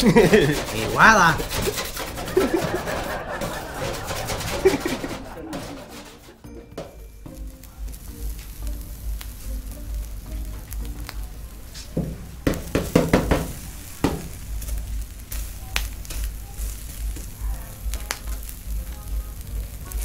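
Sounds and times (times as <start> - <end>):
shrimp sizzling on griddle: 0.0 - 6.2, 6.8 - 20.0
utensil knocking and scraping metal: 0.0 - 7.5, 12.0 - 17.4.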